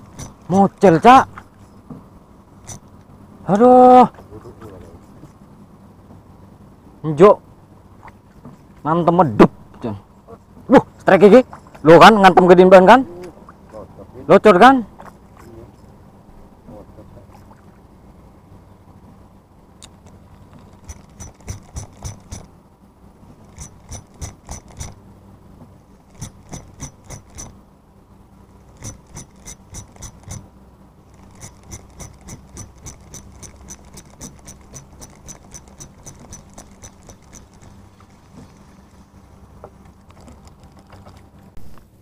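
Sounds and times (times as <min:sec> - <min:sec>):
fishing reel gears clicking: 0:23.5 - 0:25.0, 0:26.1 - 0:27.5, 0:28.8 - 0:30.4, 0:31.2 - 0:37.8.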